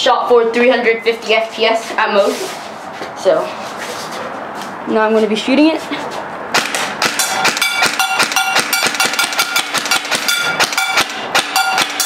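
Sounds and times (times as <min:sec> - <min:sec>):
airsoft gun shots: 0:06.5 - 0:12.0.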